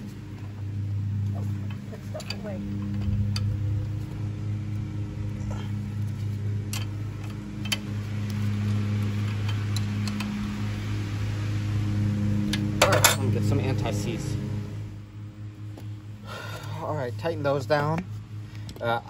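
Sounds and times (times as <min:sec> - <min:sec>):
machine humming: 0:00.0 - 0:18.7.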